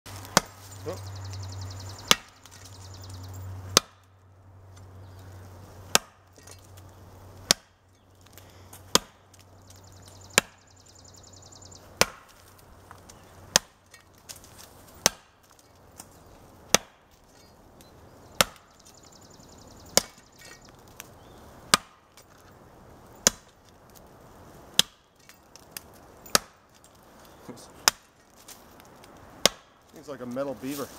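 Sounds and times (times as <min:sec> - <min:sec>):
machete chopping wooden stump: 0:00.2 - 0:00.7, 0:02.0 - 0:02.6, 0:03.8 - 0:04.1, 0:05.9 - 0:06.7, 0:07.4 - 0:07.8, 0:08.8 - 0:09.4, 0:10.3 - 0:10.6, 0:11.9 - 0:12.5, 0:13.4 - 0:14.1, 0:14.9 - 0:15.6, 0:16.7 - 0:17.1, 0:18.4 - 0:18.8, 0:19.9 - 0:20.6, 0:21.7 - 0:22.2, 0:23.2 - 0:23.6, 0:24.7 - 0:25.1, 0:26.3 - 0:26.6, 0:27.8 - 0:28.2, 0:29.4 - 0:29.8.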